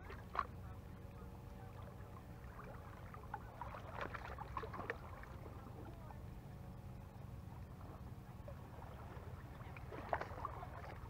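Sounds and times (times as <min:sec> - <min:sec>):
faint splashes: 0:00.0 - 0:11.0
low steady rumble: 0:00.0 - 0:11.0
small waves lapping on rocks: 0:01.6 - 0:06.2, 0:07.7 - 0:11.0.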